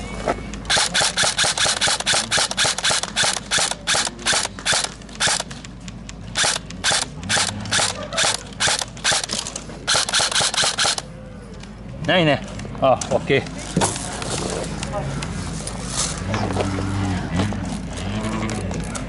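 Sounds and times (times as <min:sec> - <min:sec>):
airsoft rifles firing: 0:00.7 - 0:05.6, 0:06.4 - 0:11.1.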